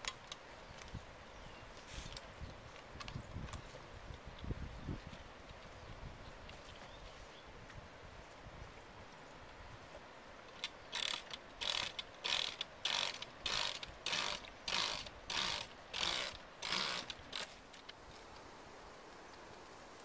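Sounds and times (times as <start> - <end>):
backpack sprayer pump strokes: 10.9 - 17.6.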